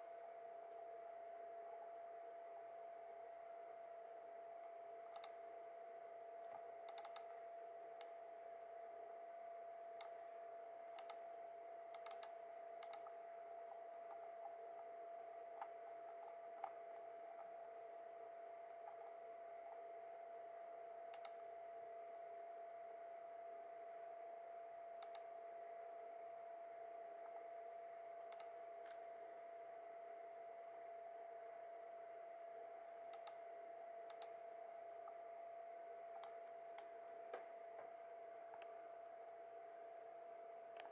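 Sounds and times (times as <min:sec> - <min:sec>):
faint electrical hum: 0:00.0 - 0:40.9
faint steady tone: 0:00.0 - 0:40.9
computer mouse clicks: 0:05.1 - 0:05.4, 0:06.5 - 0:07.4, 0:10.0 - 0:10.2, 0:11.0 - 0:11.3, 0:11.9 - 0:13.2, 0:13.9 - 0:18.1, 0:21.1 - 0:21.4, 0:25.0 - 0:25.3, 0:28.3 - 0:29.1, 0:33.0 - 0:33.4, 0:34.1 - 0:34.4, 0:36.2 - 0:37.4.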